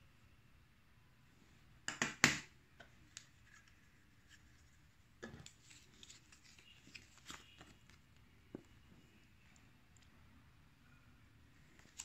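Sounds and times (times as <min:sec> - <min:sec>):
paper manual crinkling: 0:05.5 - 0:08.0.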